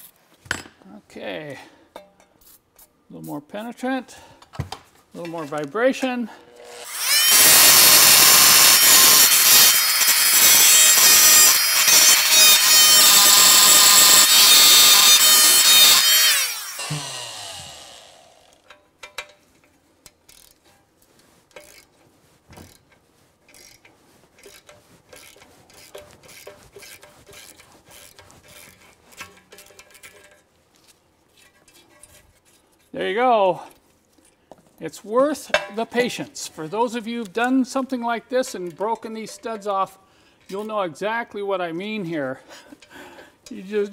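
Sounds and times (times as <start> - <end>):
multi-tool buzzing and rattling: 6.3 - 20.8, 21.5 - 32.8.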